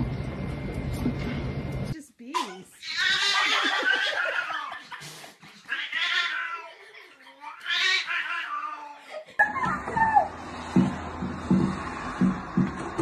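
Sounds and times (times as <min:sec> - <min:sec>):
cat yowling: 0:02.8 - 0:04.8, 0:05.7 - 0:06.7, 0:07.4 - 0:09.0.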